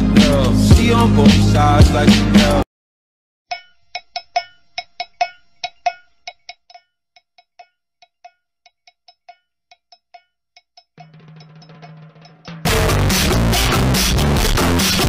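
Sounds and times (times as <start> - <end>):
bell-like percussive taps: 3.5 - 12.7.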